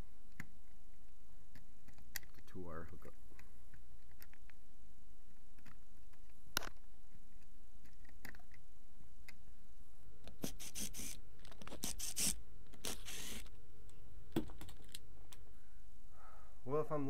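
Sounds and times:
screwdriver scraping screws: 10.3 - 13.5.

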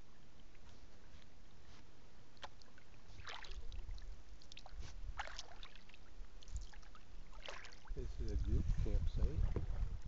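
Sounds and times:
paddle splashing water: 2.4 - 8.0
steady low rumble: 8.0 - 10.0.

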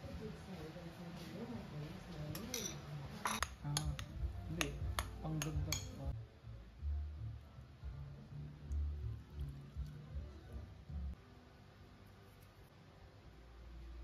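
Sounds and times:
metal spoon clinking against bowl: 2.3 - 6.1.

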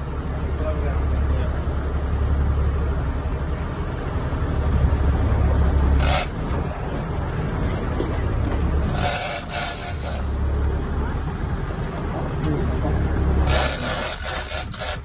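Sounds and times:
boat engine rumble: 0.0 - 15.0
wind: 0.0 - 15.0
sea noise: 1.8 - 12.0.

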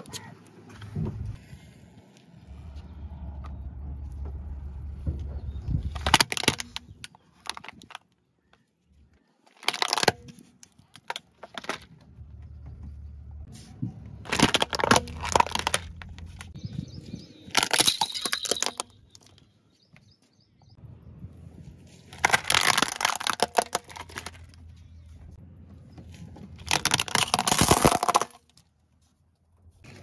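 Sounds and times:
low rumble of rolling car: 0.0 - 7.1, 11.5 - 17.8, 20.6 - 30.0
plastic toys cracking under tyre: 5.8 - 12.2, 14.1 - 16.6, 17.4 - 19.4, 22.0 - 25.0, 26.1 - 28.8.

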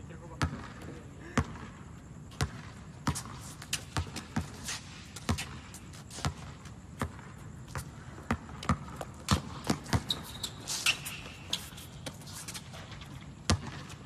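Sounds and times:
basketball bouncing on hard court: 0.3 - 14.0
shoe squeak: 9.7 - 13.4.

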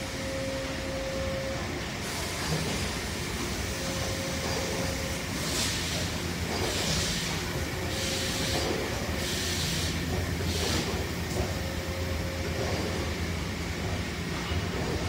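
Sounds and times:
factory machinery humming: 0.0 - 15.0
hiss: 5.1 - 11.0.

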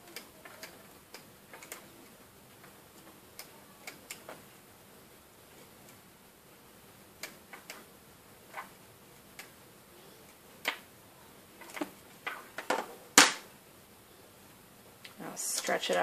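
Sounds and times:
rubber bands clicking and snapping: 0.0 - 4.4, 10.3 - 10.9, 11.6 - 13.5.

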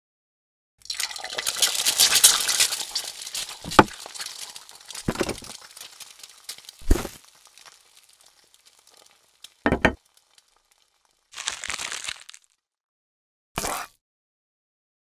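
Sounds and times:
small hard pieces clinking and rattling: 0.9 - 11.5.

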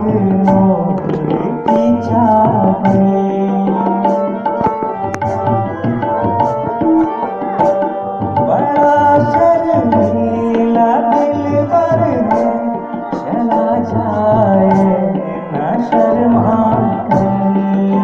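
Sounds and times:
man singing into microphone: 0.0 - 5.1, 8.4 - 18.0
harmonium chords: 0.0 - 18.0
tabla drumming: 0.0 - 18.0.

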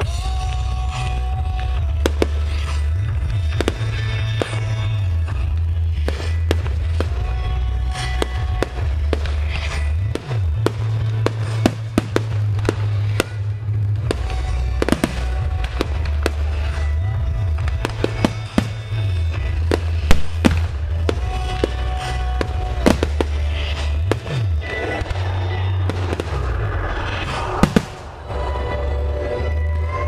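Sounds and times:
fireworks bursting: 0.0 - 30.0
loud music with heavy bass: 0.0 - 30.0.

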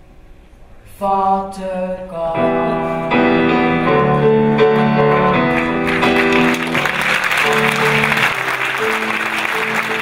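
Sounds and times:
piano playing: 2.0 - 10.0
audience applause: 5.5 - 10.0.

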